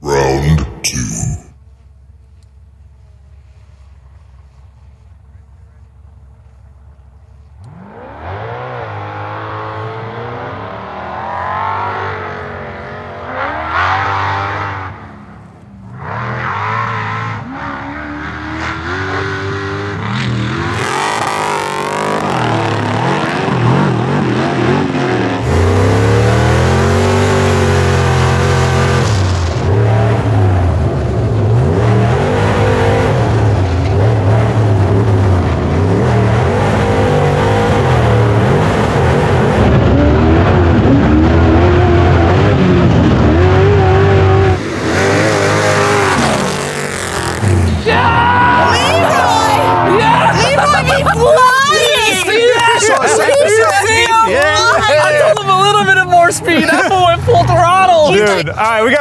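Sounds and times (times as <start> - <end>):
race car engines revving hard: 7.6 - 59.0.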